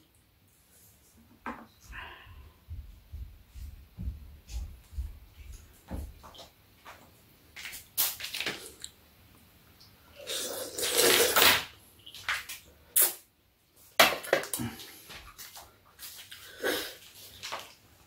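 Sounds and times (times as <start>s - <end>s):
noodles being slurped: 10.2s - 11.6s.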